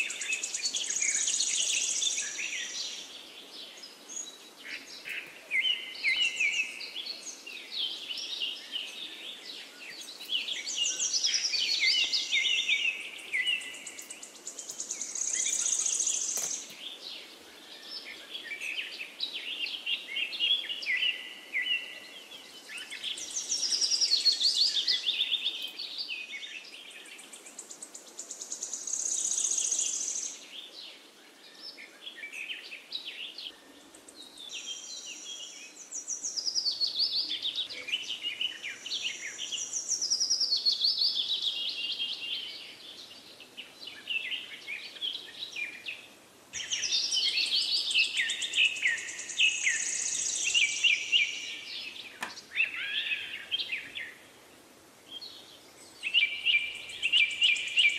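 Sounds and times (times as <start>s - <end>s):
birds chirping and trilling: 0.0s - 57.9s
faint steady hiss: 0.0s - 57.9s.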